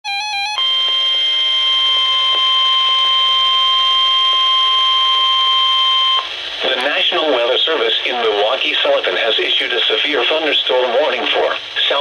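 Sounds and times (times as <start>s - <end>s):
steady warning alarm tone: 0.1s - 6.3s
warbling two-pitch beep: 0.4s - 6.2s.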